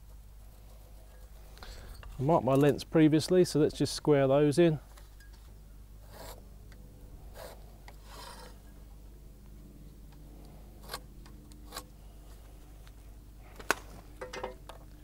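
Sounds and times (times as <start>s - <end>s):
pencil scratching on timber: 6.0s - 6.4s, 7.3s - 8.6s, 10.7s - 11.9s.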